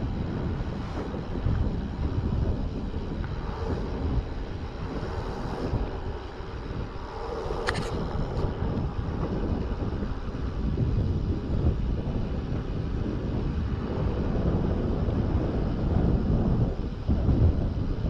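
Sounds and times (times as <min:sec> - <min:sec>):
bicycle tyre noise on asphalt: 0:00.0 - 0:18.0
wind buffeting microphone: 0:00.0 - 0:18.0
sharp click: 0:07.6 - 0:08.0.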